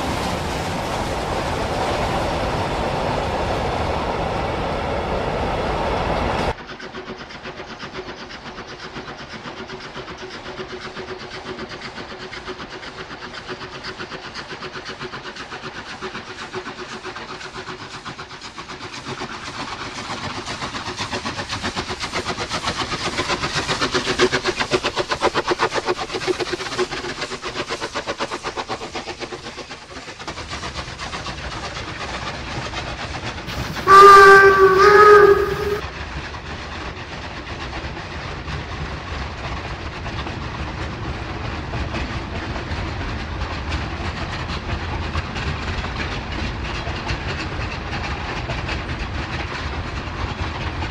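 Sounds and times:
freight wagons rumbling on rails: 0:00.0 - 0:50.9
steam locomotive exhaust beats: 0:06.0 - 0:50.9
chime steam whistle: 0:33.5 - 0:35.8.

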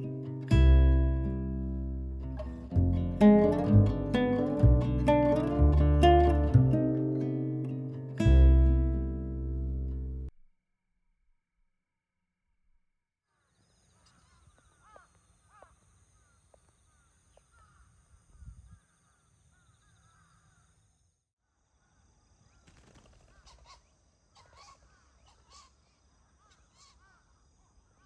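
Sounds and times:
birds calling: 0:13.3 - 0:20.8, 0:21.8 - 0:28.0
insect chorus: 0:13.3 - 0:28.0.

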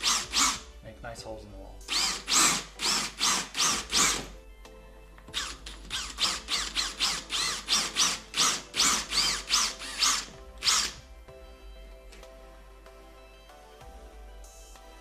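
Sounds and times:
cordless drill boring into drywall: 0:00.0 - 0:00.6, 0:01.9 - 0:04.3, 0:05.3 - 0:11.0.

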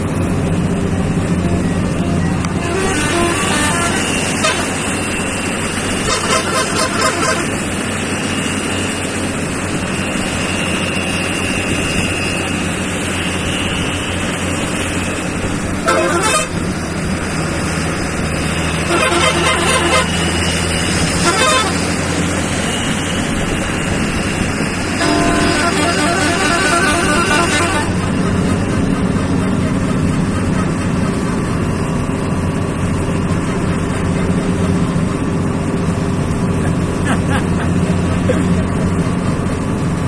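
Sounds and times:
truck engine running: 0:00.0 - 0:40.0
tyre and road noise: 0:00.0 - 0:40.0
truck horn honking: 0:01.3 - 0:28.5.

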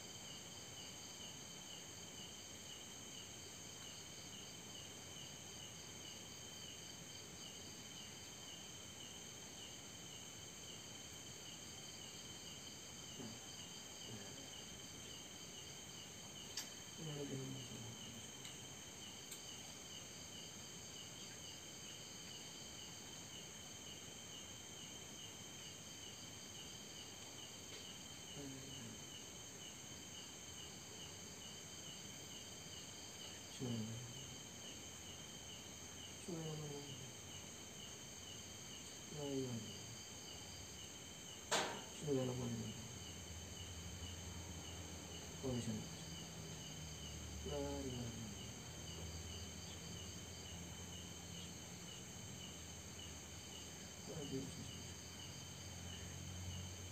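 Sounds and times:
crickets and insects chorus: 0:00.0 - 0:56.9
small click: 0:16.5 - 0:16.8.

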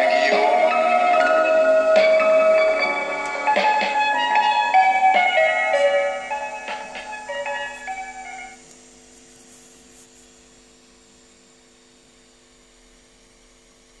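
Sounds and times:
piano notes ringing: 0:00.0 - 0:08.6
faint steady hum: 0:00.0 - 0:14.0.

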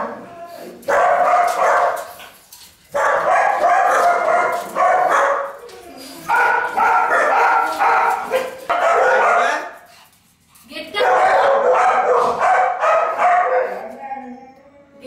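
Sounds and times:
dog whining and yelping: 0:00.0 - 0:01.8, 0:03.9 - 0:08.6.

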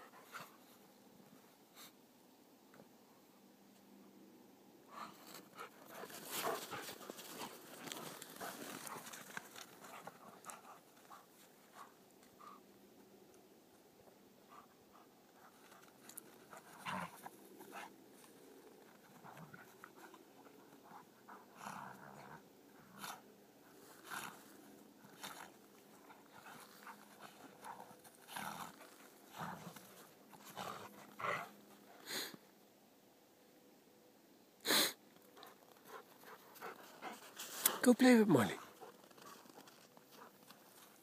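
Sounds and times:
dogs playing and scuffling: 0:04.9 - 0:12.8, 0:14.0 - 0:32.0, 0:35.1 - 0:37.8, 0:38.6 - 0:41.0.

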